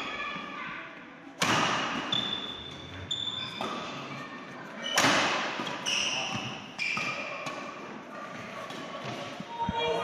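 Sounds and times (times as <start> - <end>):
rackets hitting shuttlecock: 1.4 - 2.6, 4.8 - 9.4
shoes squeaking on court: 2.0 - 9.6.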